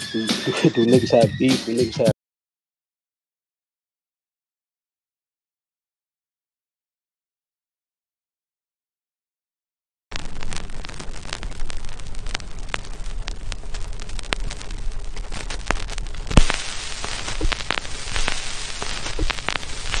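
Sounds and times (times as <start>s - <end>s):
clicks and pops: 10.1s - 20.0s
film crackle static hiss: 10.1s - 20.0s.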